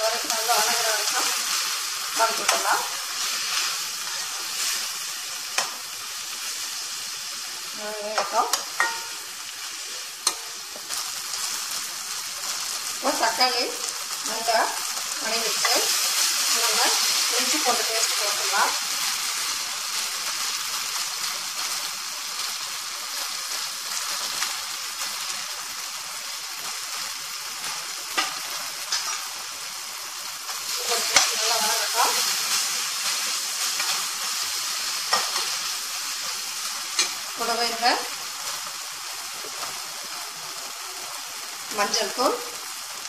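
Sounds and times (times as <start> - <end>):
masala sizzling in oil: 0.0 - 43.0
spoon knocking and scraping pan: 5.5 - 5.8, 8.1 - 9.2, 10.2 - 11.0, 27.6 - 29.3, 30.9 - 31.6, 35.0 - 35.7, 37.0 - 37.2.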